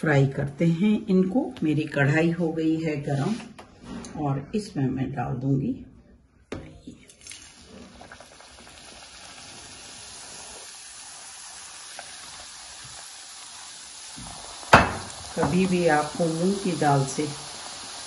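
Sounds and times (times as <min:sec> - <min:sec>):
dough sizzling in hot oil: 0:07.2 - 0:18.0.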